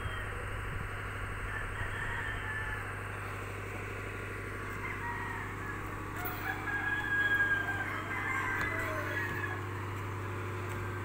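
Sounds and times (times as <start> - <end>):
low motor hum: 0.0 - 11.0
chickens calling: 1.4 - 3.4, 4.4 - 11.0.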